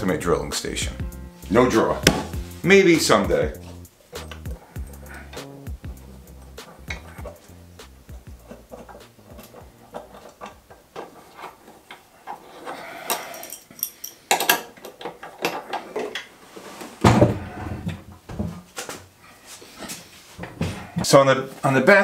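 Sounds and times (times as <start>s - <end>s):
metal base knocking and sliding on board: 2.0s - 2.4s
heavy thud: 2.0s - 2.5s.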